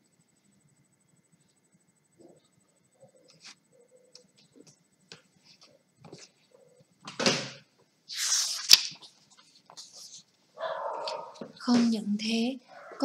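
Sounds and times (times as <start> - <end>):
book page turning: 8.1 - 10.3.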